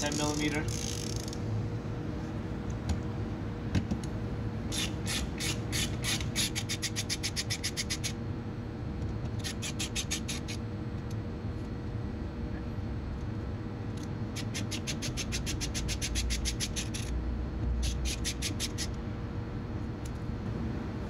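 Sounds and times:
ratchet wrench clicking: 0:00.0 - 0:01.4, 0:14.0 - 0:17.1, 0:17.8 - 0:19.0.

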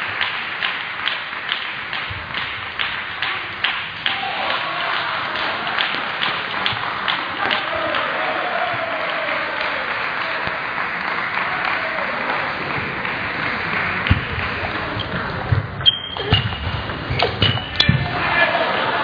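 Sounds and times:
table tennis ball hits: 0:00.0 - 0:08.1, 0:14.0 - 0:18.5
sports hall murmur: 0:00.0 - 0:19.0
shoe squeaks: 0:15.8 - 0:18.0.

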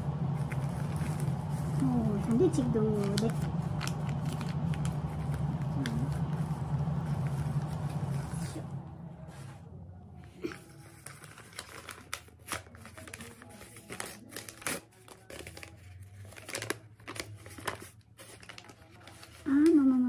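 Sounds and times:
paper packet crinkling: 0:10.4 - 0:19.9.

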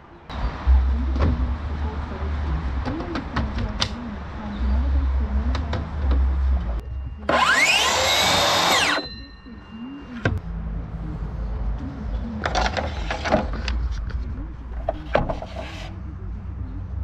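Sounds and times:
circular saw motor whining: 0:07.3 - 0:09.1.

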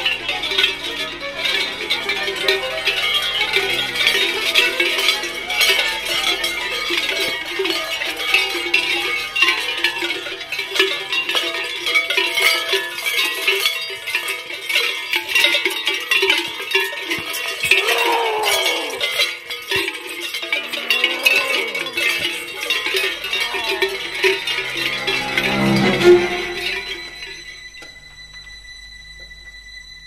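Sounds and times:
cowbells clanging: 0:00.0 - 0:27.9
low drone: 0:20.5 - 0:30.0.

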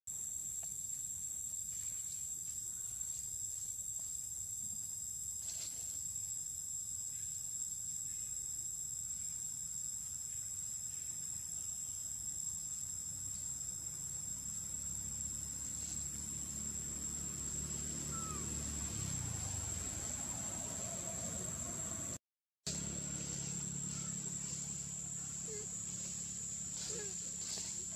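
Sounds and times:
high-pitched insect drone: 0:07.0 - 0:27.9.

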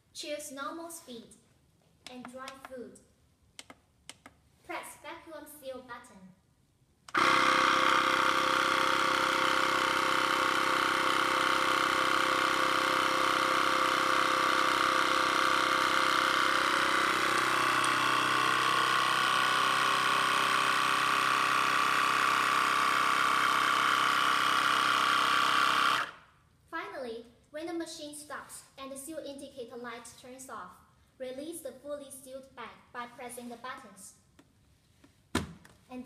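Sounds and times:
vacuum sealer pump humming: 0:07.1 - 0:26.2.

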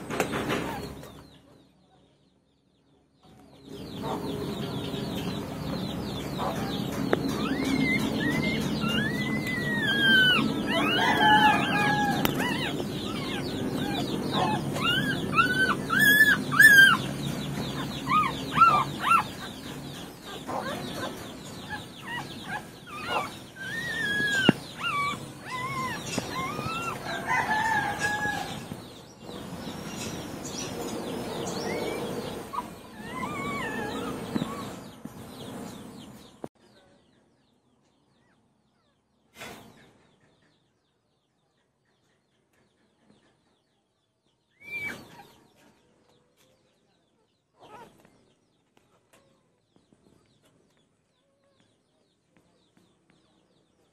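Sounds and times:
small birds chirping: 0:00.0 - 0:53.9
chickens clucking: 0:03.7 - 0:35.8.

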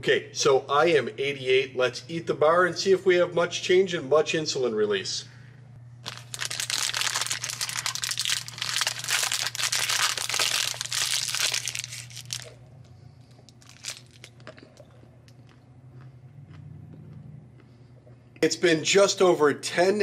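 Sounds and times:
plastic wrapper crinkling and tearing: 0:06.0 - 0:12.6, 0:13.5 - 0:14.8.

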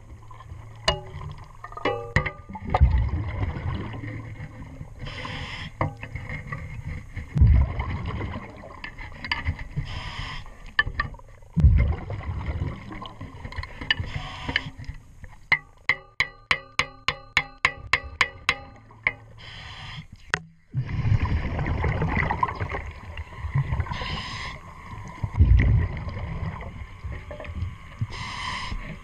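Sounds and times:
scuba regulator breathing: 0:05.0 - 0:05.8, 0:09.8 - 0:10.6, 0:14.0 - 0:14.8, 0:19.4 - 0:20.2, 0:23.9 - 0:24.7, 0:28.1 - 0:29.0
sharp metallic ticks: 0:15.5 - 0:19.5.

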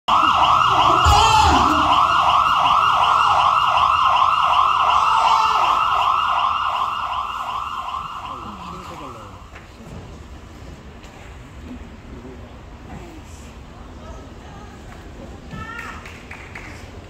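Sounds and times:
emergency siren yelping: 0:00.0 - 0:09.5.

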